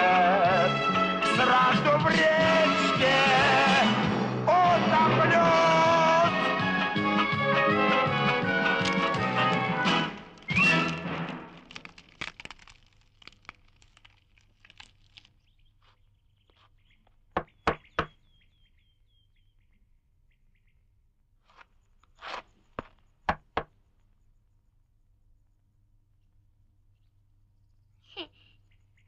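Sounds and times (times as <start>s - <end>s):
music: 0.0s - 11.4s.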